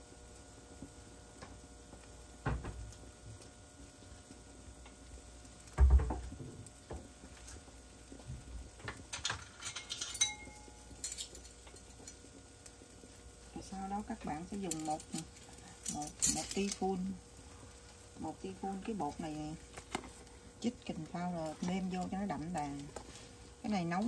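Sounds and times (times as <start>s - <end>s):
light metallic clinks: 9.5s - 12.2s.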